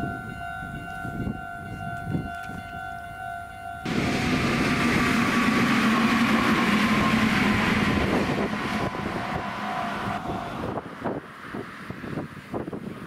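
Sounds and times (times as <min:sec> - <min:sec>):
crossing warning bell ringing: 0:00.0 - 0:11.0
train wheels rushing on rails: 0:03.8 - 0:13.0.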